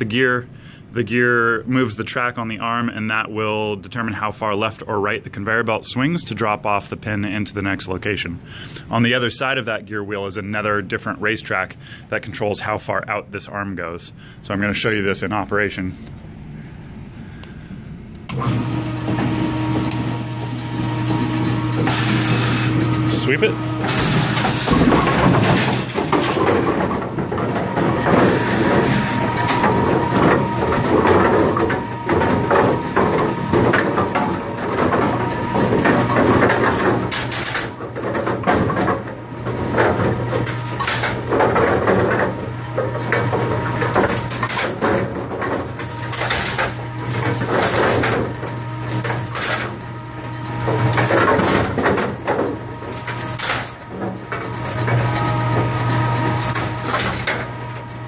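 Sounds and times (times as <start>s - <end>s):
low motor hum: 16.0s - 58.0s.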